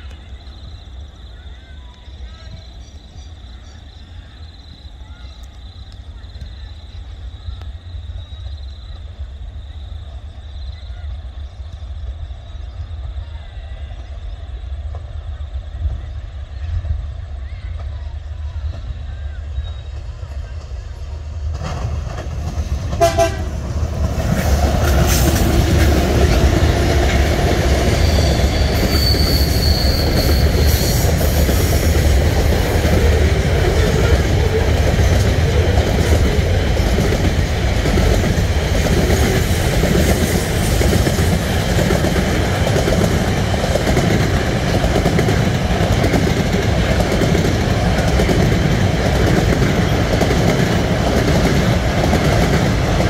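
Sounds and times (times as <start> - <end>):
diesel freight train passing: 0.0 - 53.0
train horn note: 22.9 - 23.7
high wheel squeal: 27.8 - 31.9.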